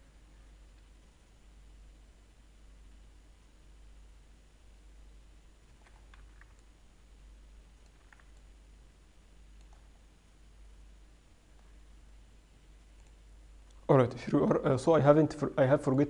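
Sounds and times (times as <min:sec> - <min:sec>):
low steady hum: 0:00.0 - 0:16.0
keyboard and mouse clicks: 0:05.7 - 0:06.7, 0:07.8 - 0:08.5, 0:09.6 - 0:10.0.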